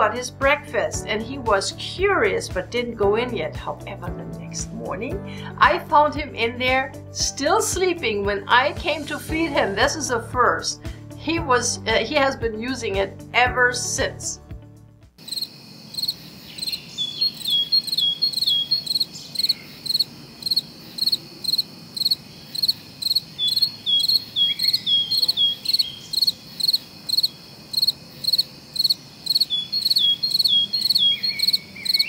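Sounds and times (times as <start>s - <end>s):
crickets chirping: 15.2s - 32.0s.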